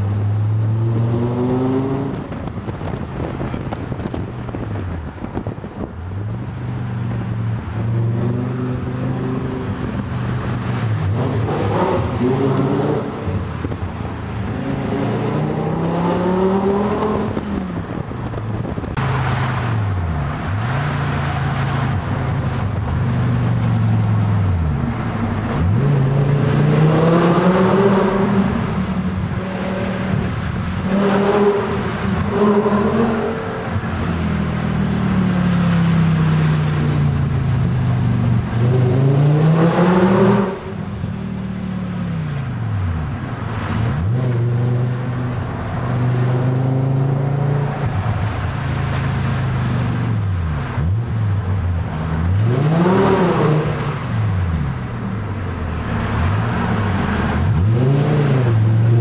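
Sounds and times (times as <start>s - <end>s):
car engine revving: 18.8s - 36.8s, 37.6s - 42.1s, 50.6s - 59.0s.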